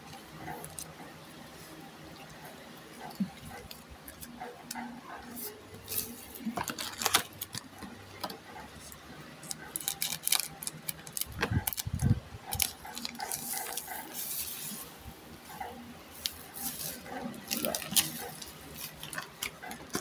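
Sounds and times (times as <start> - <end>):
foil pack and cards crinkling: 5.8 - 8.4, 9.4 - 14.8, 16.2 - 20.0.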